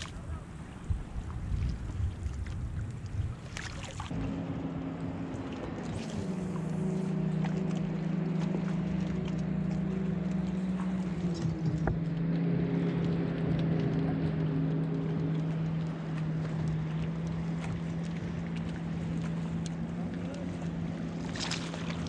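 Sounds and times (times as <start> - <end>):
steady motor hum: 0.0 - 22.0.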